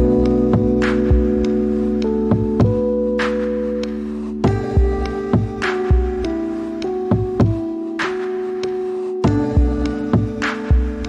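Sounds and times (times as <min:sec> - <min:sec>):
low bass line: 0:00.0 - 0:07.6.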